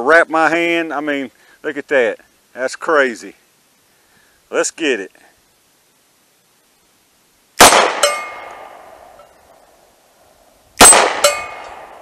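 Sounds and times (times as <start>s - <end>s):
steel target clanging: 7.6s - 9.3s, 10.8s - 12.0s.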